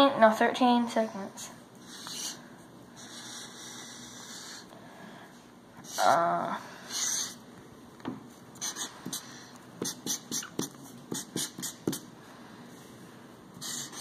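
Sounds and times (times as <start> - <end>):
marker drawing on paper: 1.9 - 2.4, 3.0 - 4.6, 6.9 - 7.4, 8.6 - 12.1, 13.6 - 14.0.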